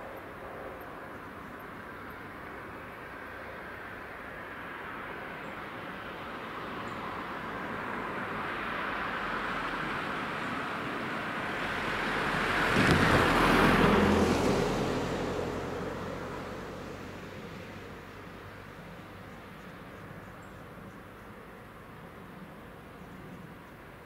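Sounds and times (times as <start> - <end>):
car passing: 6.3 - 19.3.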